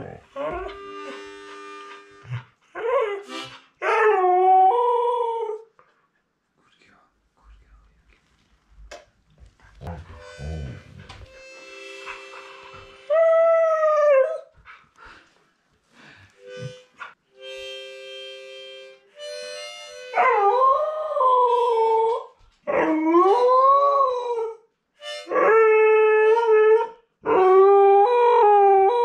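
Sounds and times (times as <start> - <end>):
harmonica held notes: 0.0 - 2.4, 3.2 - 3.8, 10.0 - 13.7, 16.0 - 21.7, 25.0 - 25.4.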